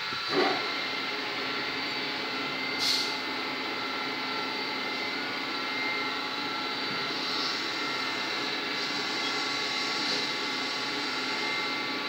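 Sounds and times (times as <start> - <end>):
mechanical hum with whining tones: 0.0 - 12.0.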